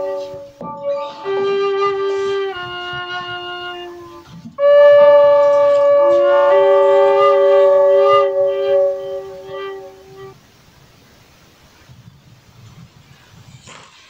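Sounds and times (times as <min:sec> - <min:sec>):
wind instruments holding chords: 0:00.0 - 0:10.4.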